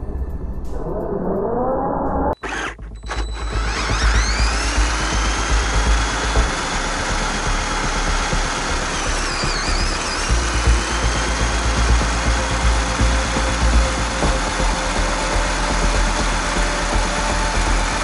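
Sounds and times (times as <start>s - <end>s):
steady low rumble: 0.0s - 9.3s
toy car motors whining: 2.4s - 18.0s.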